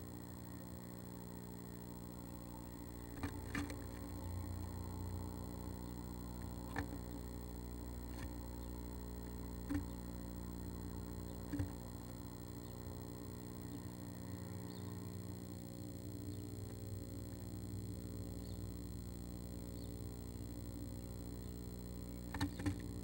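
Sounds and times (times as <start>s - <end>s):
electrical hum: 0.0s - 23.0s
bird knocking and scratching on wood: 6.7s - 7.1s, 11.4s - 11.8s.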